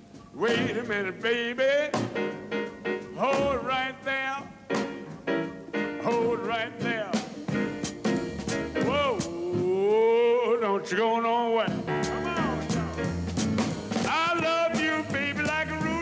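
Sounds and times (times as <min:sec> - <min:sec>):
blues band playing live: 0:00.0 - 0:16.0
bending lead melody: 0:11.7 - 0:16.0.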